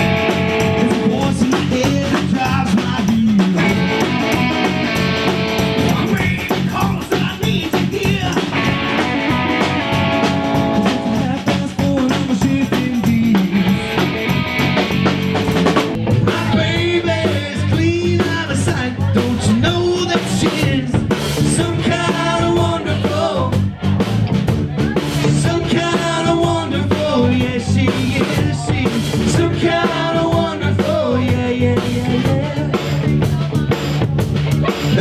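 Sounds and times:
man singing: 0.0s - 14.2s, 16.1s - 24.2s, 24.8s - 34.0s, 34.6s - 35.0s
electric guitar: 0.0s - 17.9s
bass guitar: 0.0s - 35.0s
drum kit: 0.0s - 35.0s.

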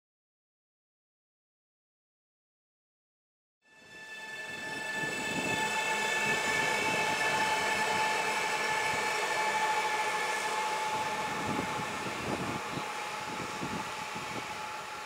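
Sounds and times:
high electric whine: 3.7s - 15.0s
train wheel and rolling noise: 3.7s - 15.0s.

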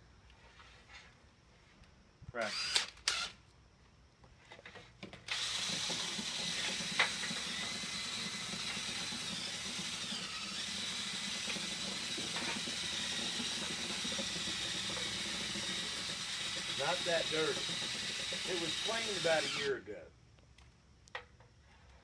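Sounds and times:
cordless drill spinning brush in metal pipe: 2.4s - 3.4s, 5.3s - 19.9s.

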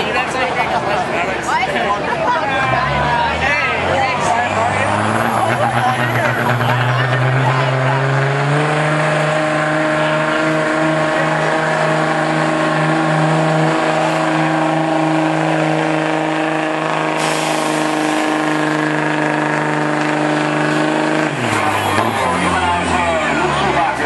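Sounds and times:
diesel engine revving high: 2.0s - 24.0s.

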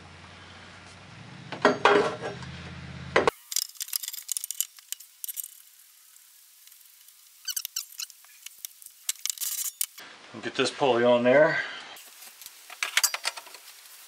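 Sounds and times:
light metallic clinks: 12.8s - 13.6s.

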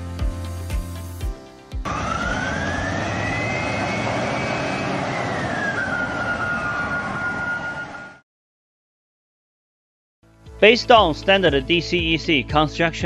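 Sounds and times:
jet whoosh with rising whine: 1.8s - 8.2s.

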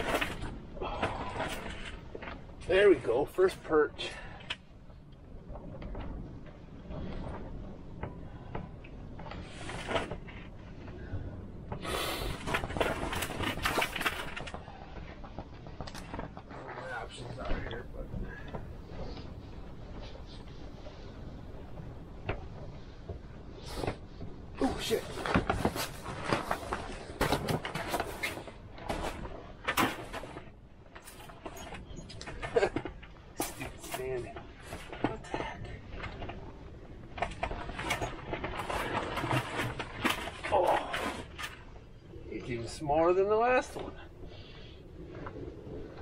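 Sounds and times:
low rumble of wind: 0.0s - 46.0s
rustling and handling noises: 11.6s - 46.0s.

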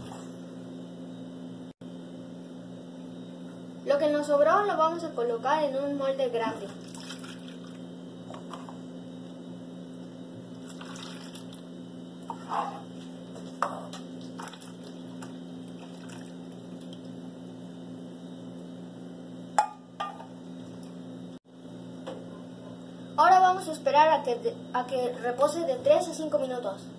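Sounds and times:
liquid pouring and dripping: 6.8s - 7.8s, 10.6s - 11.6s.

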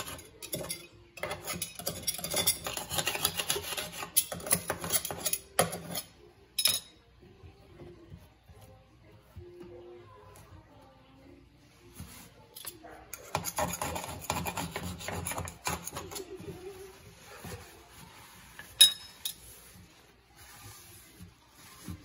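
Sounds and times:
rag scrubbing steel sink rim: 0.0s - 6.2s, 13.1s - 22.0s.

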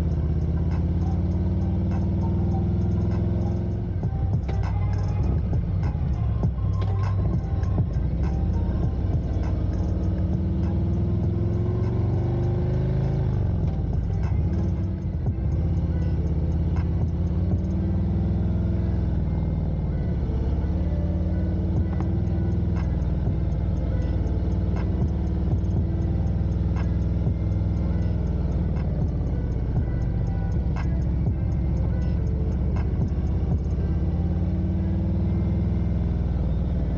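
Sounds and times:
motorcycle engine running: 0.0s - 36.9s.

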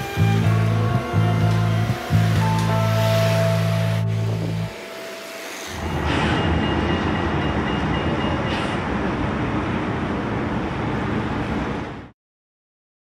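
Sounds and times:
passing vehicles rumble: 0.0s - 5.0s.

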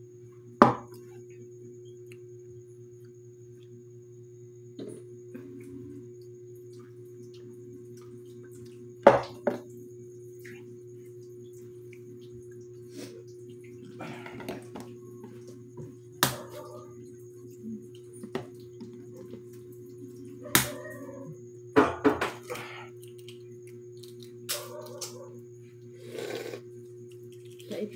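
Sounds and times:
steady low hum: 0.0s - 27.9s
eggshell crackling: 22.9s - 25.2s, 26.2s - 27.9s.

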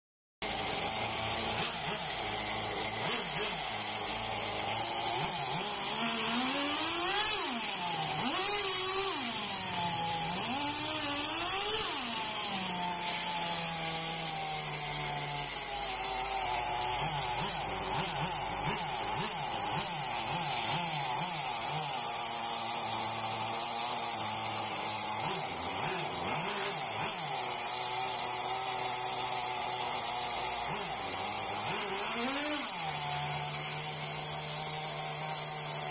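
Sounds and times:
nitro engine revving and idling: 0.4s - 35.9s.

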